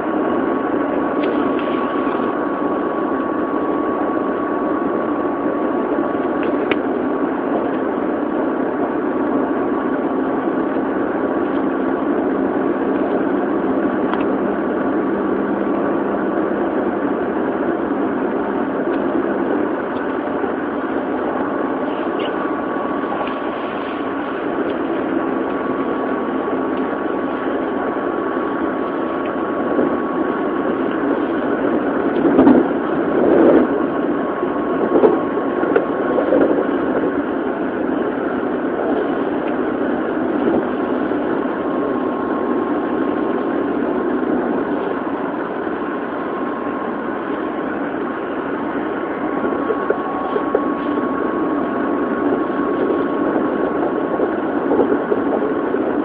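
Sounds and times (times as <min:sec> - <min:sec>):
thin steady tone: 0:00.0 - 0:56.0
train wheels rumbling on rail: 0:00.0 - 0:56.0.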